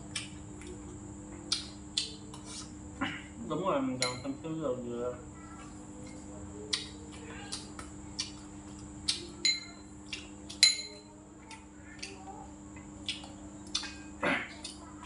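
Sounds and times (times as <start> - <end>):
spoon clinking against dishes: 4.0 - 4.5, 9.4 - 9.9, 10.5 - 11.1.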